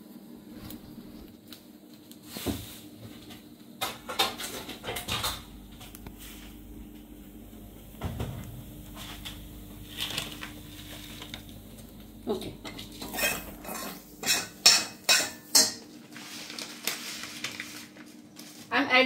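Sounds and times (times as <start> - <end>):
steel spoon clinking against pot: 13.1 - 15.8.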